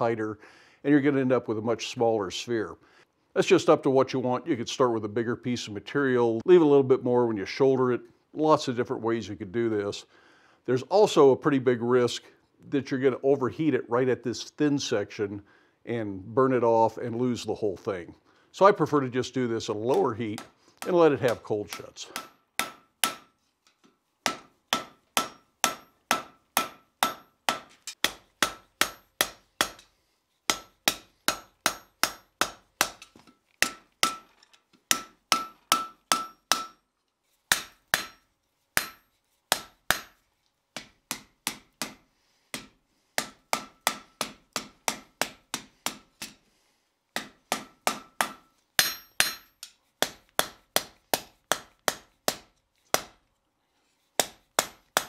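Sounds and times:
hammer striking steel on anvil: 19.9s - 23.3s, 24.2s - 29.9s, 30.5s - 34.3s, 34.9s - 36.8s, 37.5s - 40.2s, 42.6s - 46.4s, 47.2s - 52.4s, 54.2s - 55.0s.

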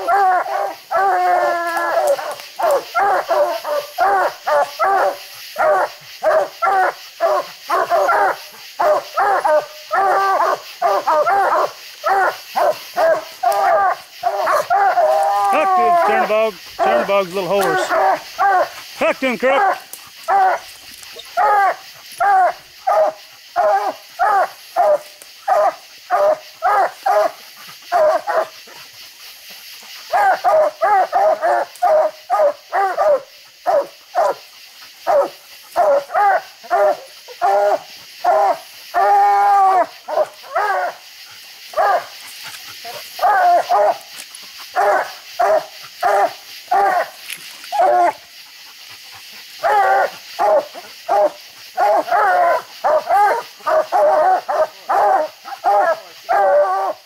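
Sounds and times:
hound bawling: 0.0s - 27.3s, 49.6s - 57.0s
hounds barking: 0.0s - 29.0s, 29.8s - 57.0s.

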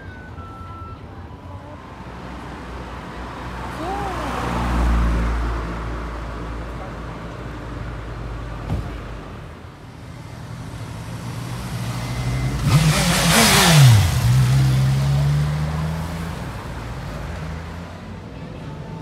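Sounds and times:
city traffic: 0.0s - 19.0s
motorcycle accelerating past: 10.7s - 16.3s.

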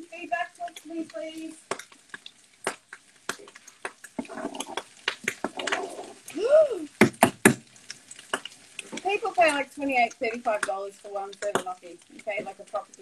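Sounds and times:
loud knocks: 7.0s - 7.6s.

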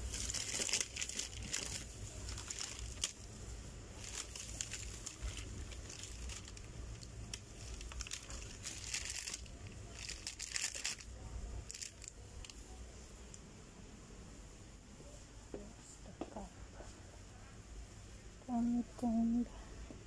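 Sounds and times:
plastic crinkling: 0.0s - 13.4s
low steady hum: 0.0s - 20.0s.

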